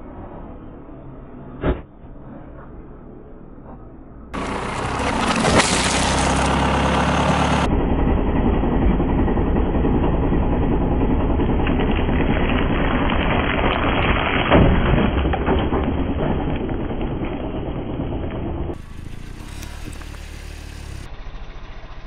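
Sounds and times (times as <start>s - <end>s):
car engine idling: 4.4s - 13.3s, 16.2s - 22.0s.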